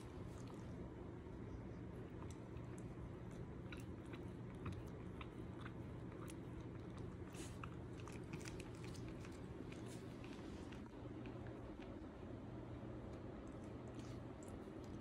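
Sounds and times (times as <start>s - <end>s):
faint low hum: 0.0s - 15.0s
dog crunching kibble: 2.1s - 12.0s.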